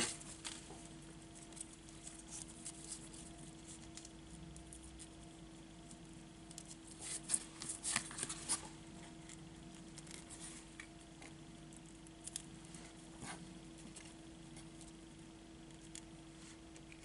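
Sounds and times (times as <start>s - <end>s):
steady low hum: 0.0s - 17.0s
paper rustling and clicks: 6.6s - 8.7s.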